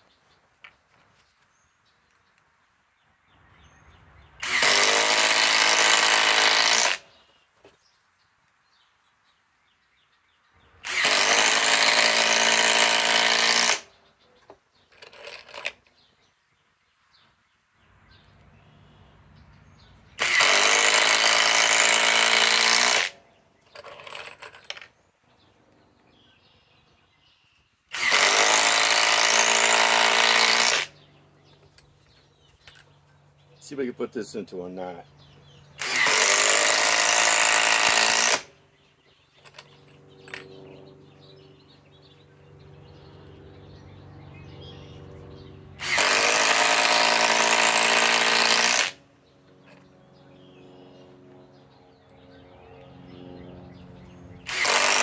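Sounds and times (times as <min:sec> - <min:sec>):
impact driver hammering screws: 0:04.4 - 0:07.0, 0:10.8 - 0:13.9, 0:20.2 - 0:24.9, 0:27.9 - 0:30.9, 0:35.8 - 0:38.5, 0:45.8 - 0:49.0, 0:54.5 - 0:55.0
impact driver spinning: 0:04.4 - 0:07.0.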